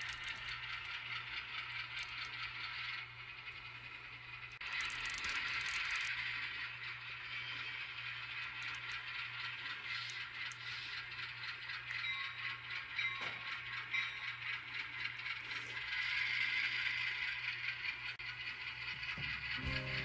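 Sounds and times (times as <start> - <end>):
model train clicking rattle: 0.0 - 20.0
low motor hum: 18.7 - 20.0.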